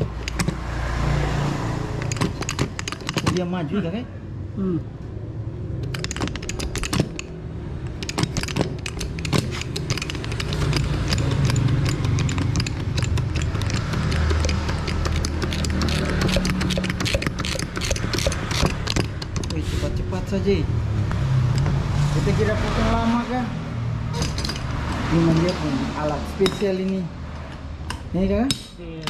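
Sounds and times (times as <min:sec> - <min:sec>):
wire rope cutter clicking: 0:07.9 - 0:19.6.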